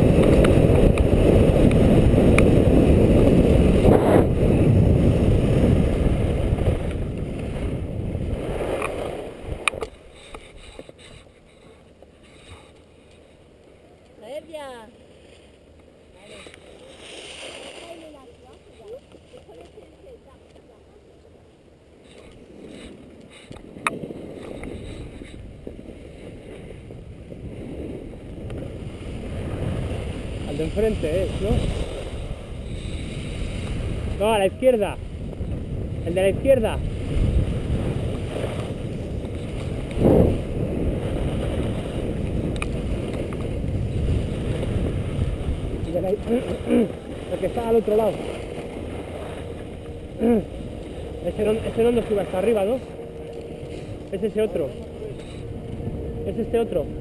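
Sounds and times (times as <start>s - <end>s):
wind rushing over microphone: 0.0s - 11.2s, 22.2s - 57.0s
scraping over snow: 15.1s - 20.7s, 22.1s - 57.0s.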